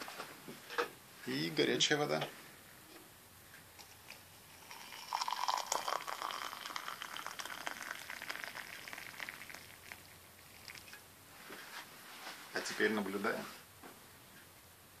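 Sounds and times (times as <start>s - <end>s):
water pouring into a glass mug: 3.9s - 11.0s.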